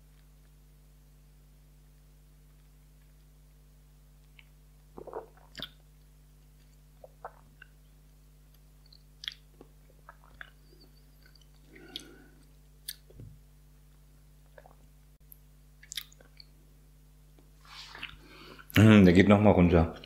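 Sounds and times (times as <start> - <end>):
steady low hum: 0.0 - 20.0
lip smacks and tongue clicks: 4.2 - 7.8, 8.5 - 10.6, 11.2 - 13.2, 14.5 - 16.5
wet chewing: 11.2 - 13.1.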